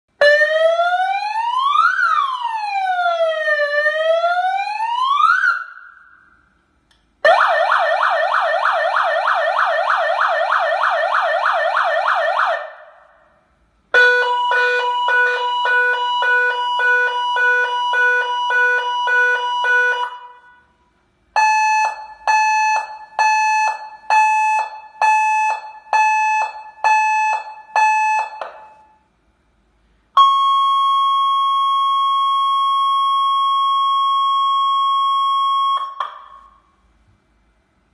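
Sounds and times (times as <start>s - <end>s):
electronic alarm siren: 7.2s - 12.8s, 14.0s - 20.4s, 21.4s - 28.8s, 30.2s - 36.5s.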